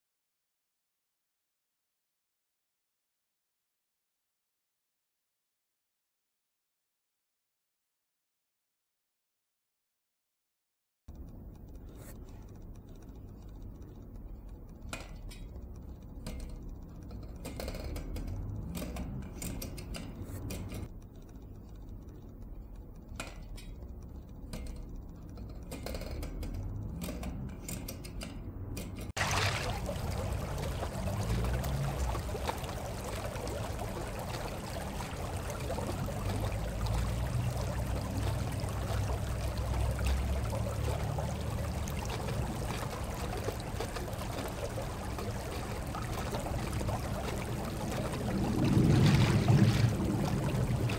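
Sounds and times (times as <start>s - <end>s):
model turbine clicking and rattling: 11.1s - 29.2s, 29.8s - 49.0s, 49.9s - 50.9s
flowing water rushing: 29.2s - 50.9s
low rumble: 44.8s - 50.9s.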